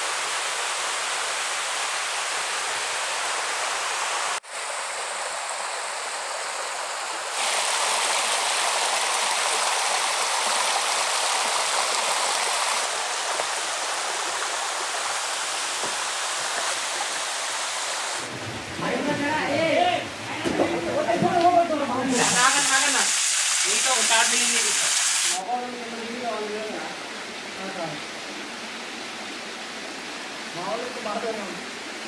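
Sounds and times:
waterfall rushing over rocks: 0.0 - 19.4, 21.0 - 26.9.

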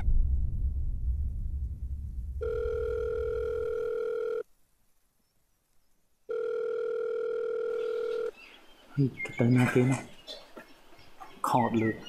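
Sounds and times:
telephone ringback beeps: 2.4 - 4.4, 6.3 - 8.3.

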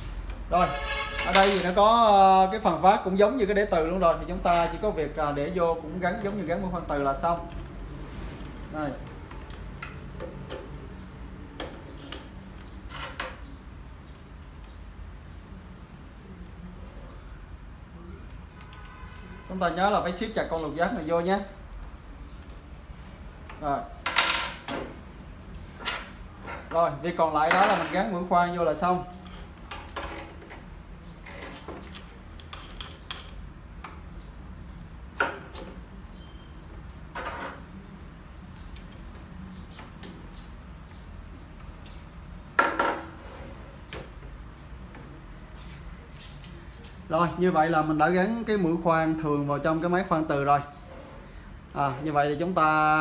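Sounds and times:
metal clicks and clinks: 7.5 - 10.8, 11.6 - 13.4, 28.8 - 30.3, 31.4 - 33.6, 38.6 - 39.1.

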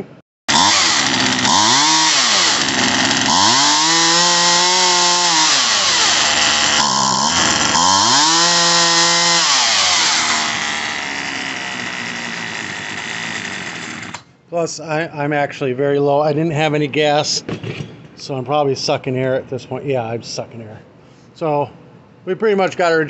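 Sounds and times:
chainsaw engine revving: 0.5 - 14.2.

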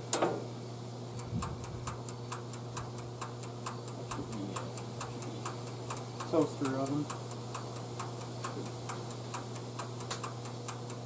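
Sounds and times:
low electrical hum: 0.0 - 11.0
clockwork timer ticking: 1.2 - 11.0
timer knob click: 1.2 - 11.0.

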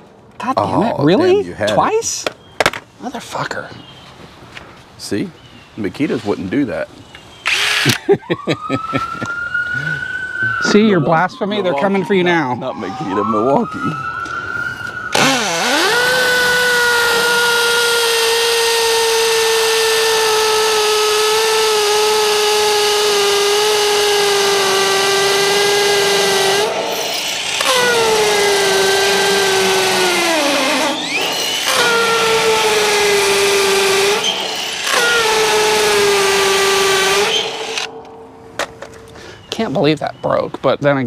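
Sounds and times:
cordless drill motor whining: 7.4 - 8.0, 14.8 - 37.9.

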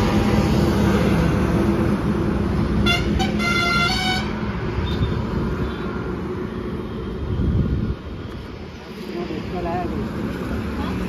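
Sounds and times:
traffic rumble: 0.0 - 11.0
vehicle horn honking: 2.8 - 5.2.

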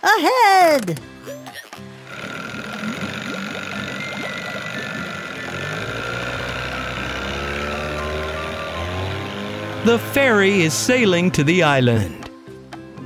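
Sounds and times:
boat motor running: 1.0 - 12.3
water churning: 1.7 - 11.5.

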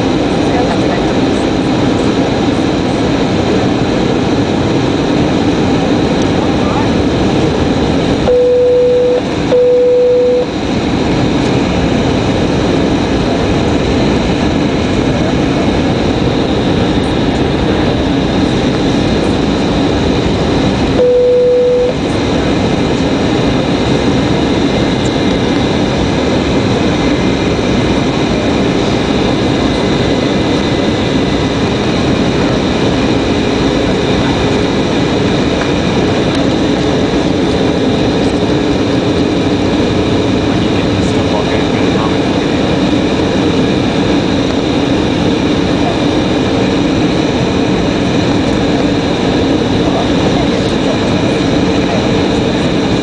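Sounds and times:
jet engine hum: 0.0 - 53.0
faint high whine: 8.1 - 10.7, 14.9 - 25.6
short low beeps: 8.3 - 10.5, 21.0 - 22.0.

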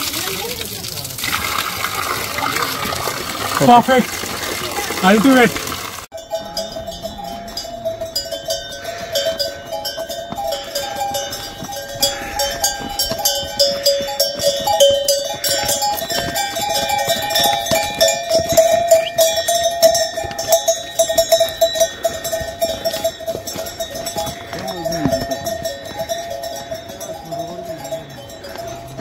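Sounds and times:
metal bells clanking: 6.1 - 29.0.

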